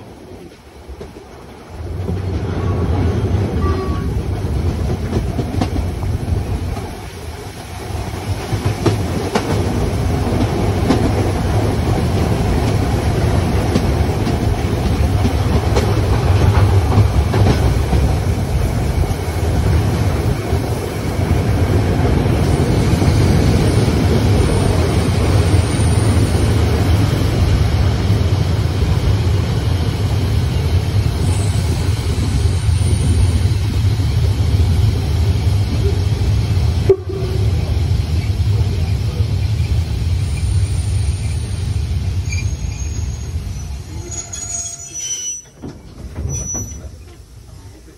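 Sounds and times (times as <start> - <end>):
wheels clacking over rails: 0.0 - 30.0, 45.4 - 47.9
steam locomotive running rumble: 0.0 - 47.9
faint high squeal: 42.2 - 45.6, 46.2 - 47.0.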